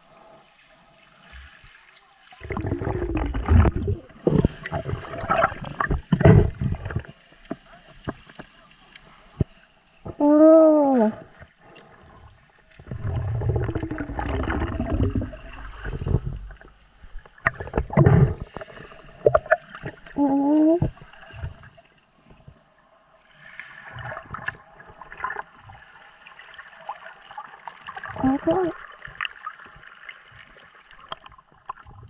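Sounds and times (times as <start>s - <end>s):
water gurgling and bubbling: 2.3s - 7.6s, 10.0s - 21.8s, 23.8s - 32.0s
underwater knocks and clicks: 2.4s - 8.5s, 12.7s - 20.2s.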